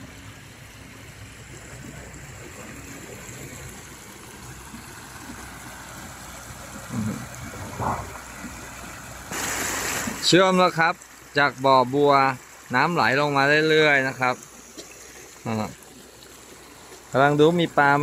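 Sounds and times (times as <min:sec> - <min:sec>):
muddy water rushing and gurgling: 0:00.0 - 0:18.0
low bumps: 0:06.8 - 0:09.0.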